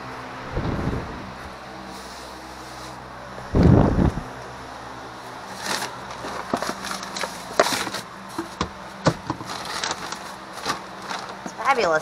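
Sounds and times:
plastic bag rustling: 5.4 - 12.0
plastic bins knocking: 7.6 - 11.6.

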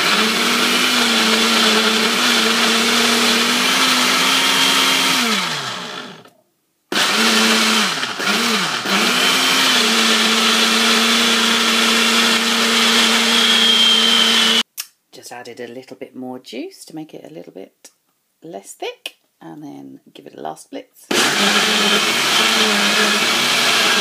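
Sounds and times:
blender motor running: 0.0 - 6.3, 6.9 - 14.6, 21.1 - 24.0.

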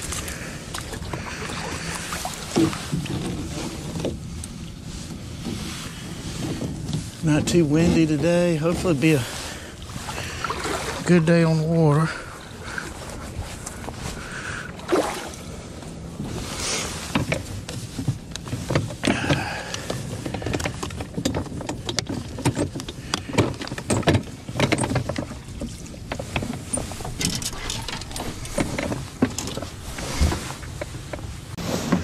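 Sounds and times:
feet shifting on hull: 0.0 - 32.0
knocks and rattles in a boat: 0.0 - 32.0
steady low rumble: 26.0 - 31.6.

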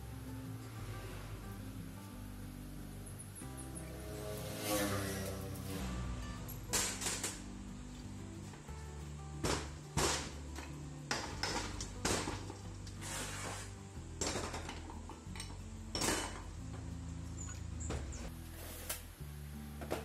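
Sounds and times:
soft background music: 0.0 - 20.0
metal tools clanking on metal: 14.2 - 16.5.

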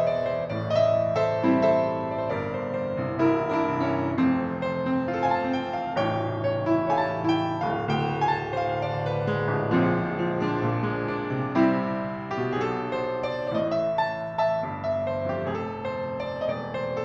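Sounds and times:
piano playing chords and melody: 0.0 - 17.0.

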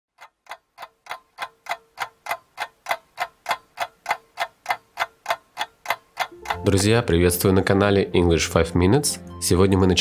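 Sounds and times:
clock ticking quickly: 0.1 - 7.1.

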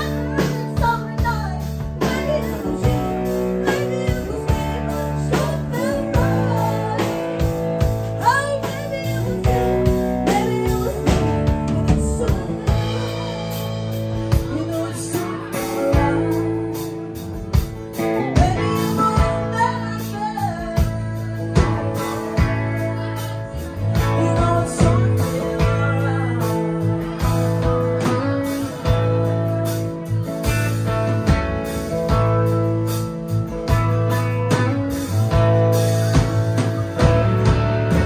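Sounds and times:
woman singing: 0.0 - 13.1, 14.1 - 17.0, 17.9 - 29.0
country band playing: 0.0 - 38.0.

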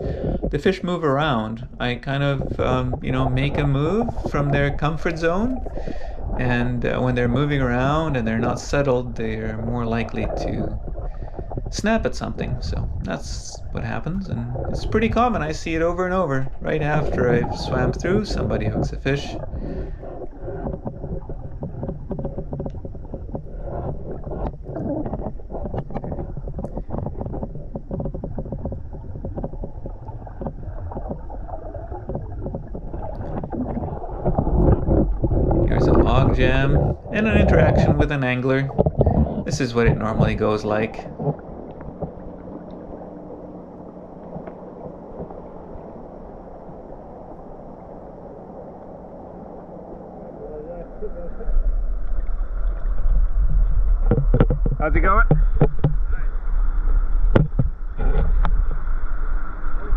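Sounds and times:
underwater rush of flowing water: 0.0 - 59.9
small irregular clicks: 18.0 - 38.1, 41.0 - 49.0.

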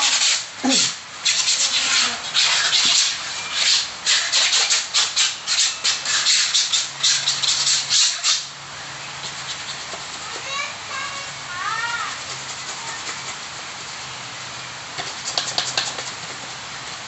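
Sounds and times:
sandpaper rasping on concrete wall: 0.0 - 8.5, 9.2 - 10.7, 11.6 - 14.1, 14.9 - 17.0.

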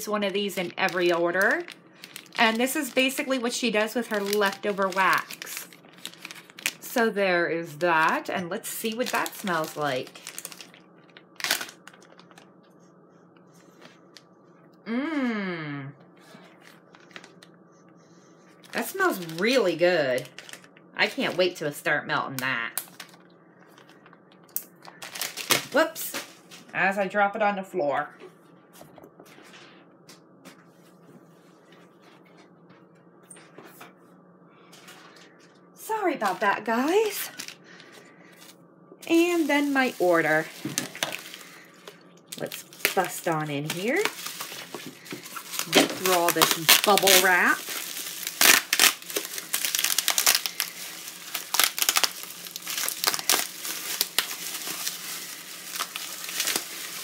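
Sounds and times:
bubble wrap crinkling: 0.0 - 12.8, 18.6 - 21.6, 22.6 - 26.5, 36.2 - 57.0
low steady hum: 0.0 - 57.0.

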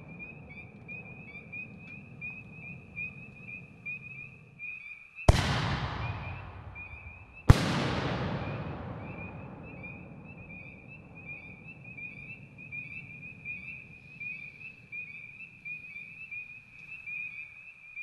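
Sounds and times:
firework shell burst echoing: 5.3 - 11.2.

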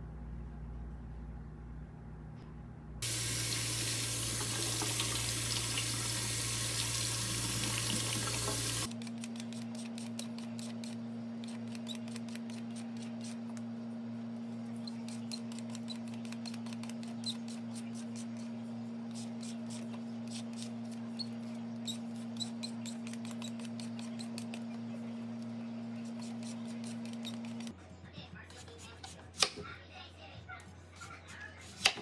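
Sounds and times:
steady low hum: 0.0 - 31.4
vegetable peeler scraping radish: 8.6 - 13.5, 14.8 - 24.9, 25.9 - 27.7.

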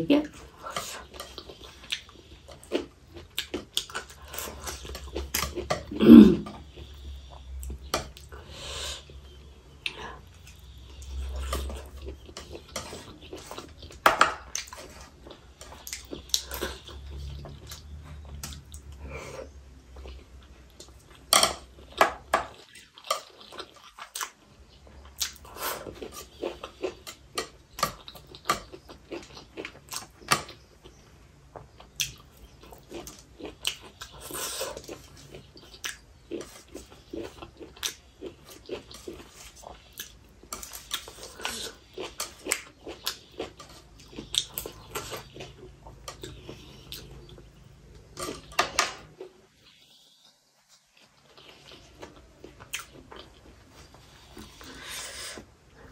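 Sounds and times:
low vocal grunt: 5.9 - 6.5
chewing and lip smacking: 22.5 - 48.3, 50.8 - 54.8.

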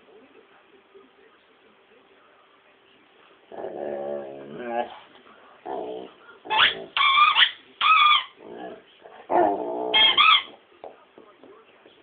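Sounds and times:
dog howling and whining: 9.3 - 10.6.

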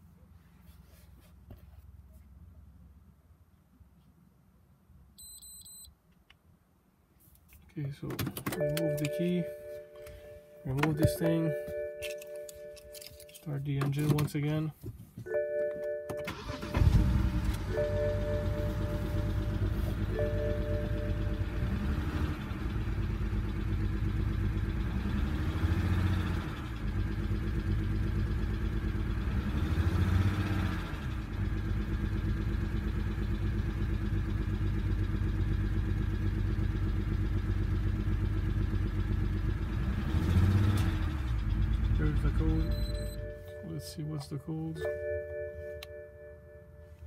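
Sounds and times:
misfiring car engine idling and revving: 16.3 - 47.0.

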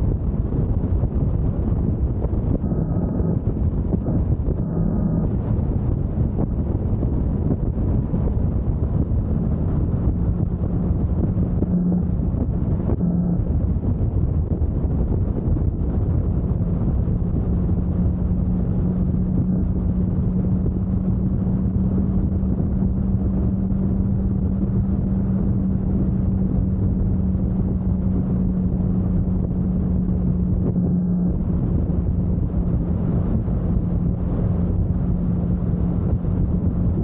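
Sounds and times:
motorcycle engine cruising: 0.0 - 37.0
wind rumble on microphone: 0.0 - 37.0.

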